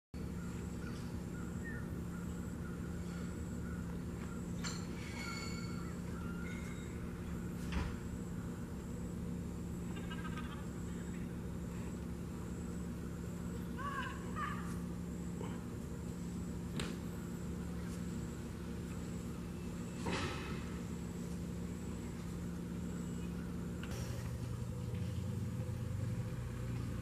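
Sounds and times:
faint bird chirps: 0.2s - 14.9s
steady low hum: 0.2s - 27.0s.

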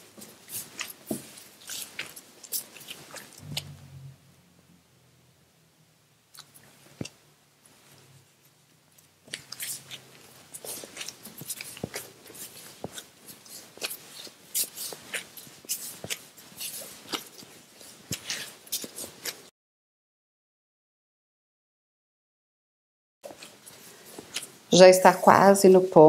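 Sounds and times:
plastic gloves crinkling: 0.0s - 3.5s, 6.4s - 19.5s, 23.3s - 25.6s
dough squishing: 0.0s - 4.1s, 6.0s - 19.5s, 23.2s - 26.0s.

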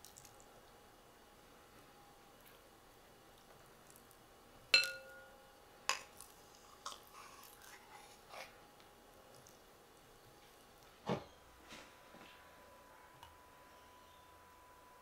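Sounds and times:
glass jar clinking on metal bowl: 4.8s - 5.4s.

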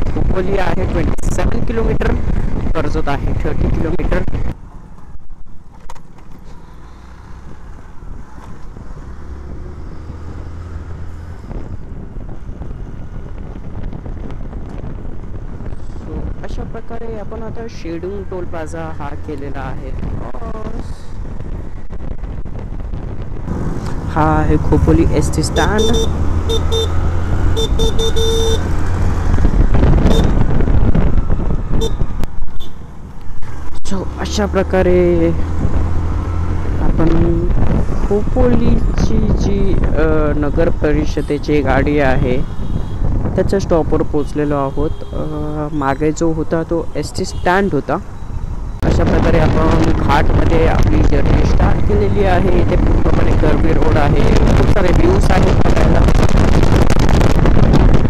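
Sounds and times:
scooter engine and road noise: 0.0s - 58.0s
wind rushing over microphone: 0.0s - 58.0s
scooter engine hum: 23.5s - 33.0s
horn toots: 25.5s - 28.7s, 30.0s - 30.4s.

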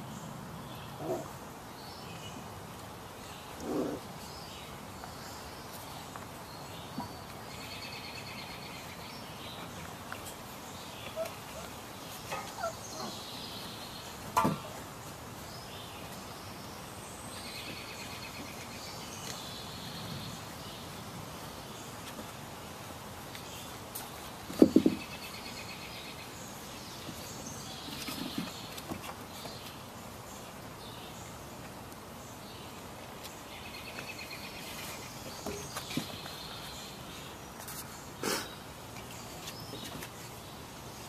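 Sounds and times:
birds calling in trills: 6.8s - 14.8s
puppies yipping: 11.0s - 11.7s, 12.3s - 13.1s.

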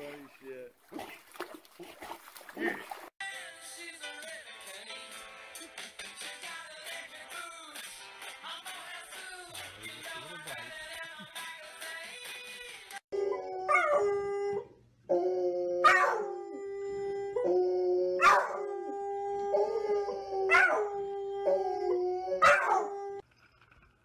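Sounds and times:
background music: 3.2s - 13.0s
dogs howling: 13.1s - 23.2s.

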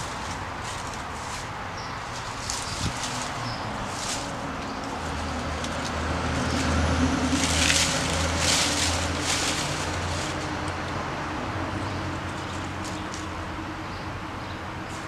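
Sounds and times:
dry branches and leaves crackling: 0.0s - 14.0s
riding mower engine idling: 0.0s - 15.0s.

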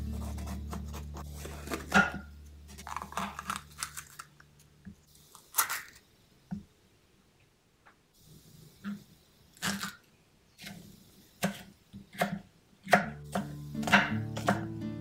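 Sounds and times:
knife cutting bell pepper: 0.0s - 4.2s, 9.6s - 10.0s, 11.4s - 14.7s
pepper cracking and tearing: 0.2s - 6.0s, 9.6s - 10.0s.

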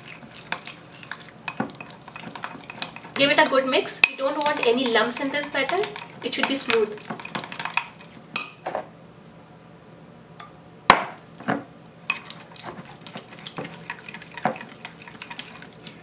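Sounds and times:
spoon scraping batter: 0.0s - 3.6s, 4.2s - 8.2s.

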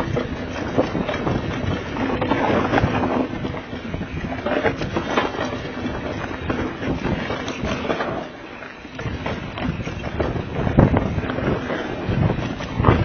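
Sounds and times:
bike knocks and rattles: 0.0s - 13.0s
wind rushing over microphone: 0.0s - 13.0s.

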